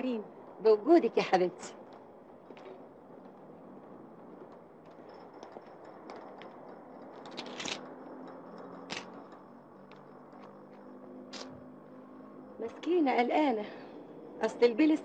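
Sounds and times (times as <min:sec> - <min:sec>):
small clicks: 0:04.4 - 0:11.6.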